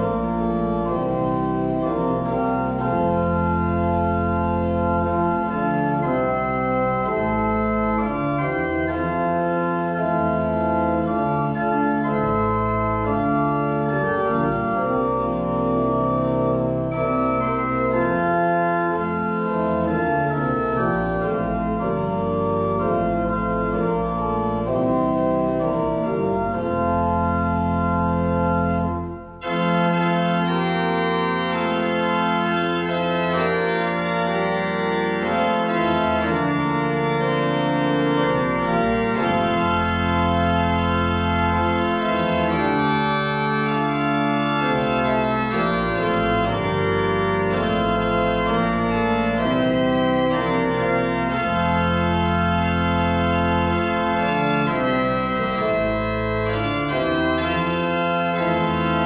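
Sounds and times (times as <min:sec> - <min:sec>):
organ playing a hymn: 0:00.0 - 0:59.0.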